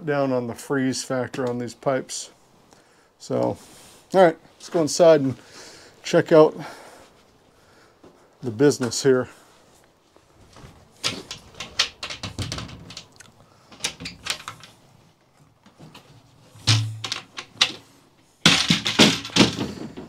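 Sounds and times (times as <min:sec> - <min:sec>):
metal latches clicking: 0:11.0 - 0:14.8, 0:16.6 - 0:17.8
heavy thump: 0:16.6 - 0:17.2.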